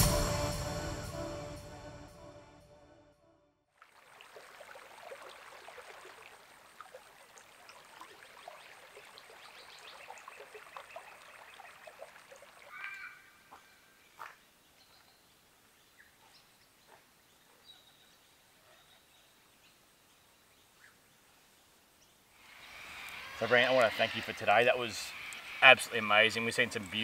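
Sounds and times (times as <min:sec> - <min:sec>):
water splashing and trickling: 0:03.7 - 0:14.6, 0:22.4 - 0:27.0
bird calls: 0:08.5 - 0:19.8.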